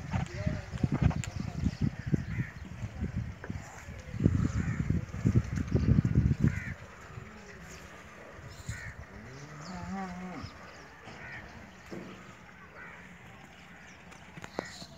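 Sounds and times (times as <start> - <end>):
cow mooing: 9.0 - 10.7.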